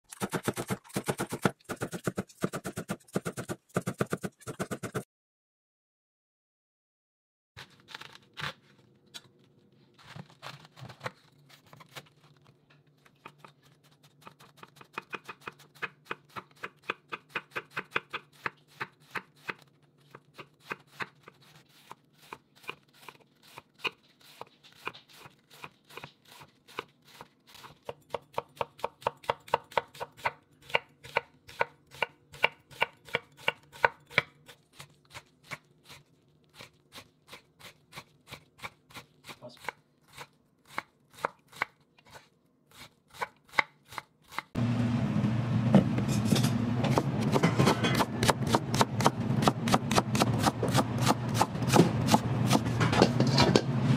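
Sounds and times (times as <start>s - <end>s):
knife chopping on wooden board: 0.1s - 5.0s, 46.2s - 53.6s.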